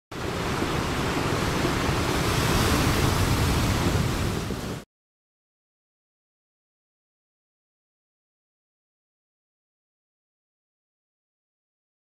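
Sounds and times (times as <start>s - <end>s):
sea surf rushing: 0.1s - 4.9s
wind: 0.1s - 4.9s.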